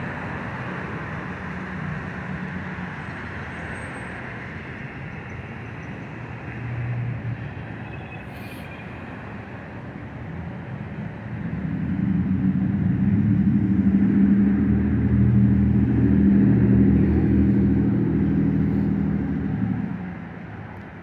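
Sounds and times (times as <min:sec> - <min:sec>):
motor vehicle passing: 0:11.4 - 0:20.4.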